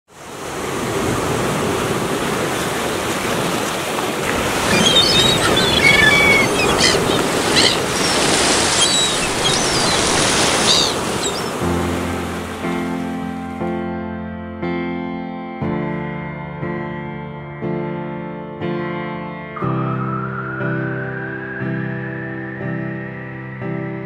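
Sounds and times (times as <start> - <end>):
surf breaking over rocks: 0.2 - 13.2
short high chirps and whistles: 4.7 - 11.5.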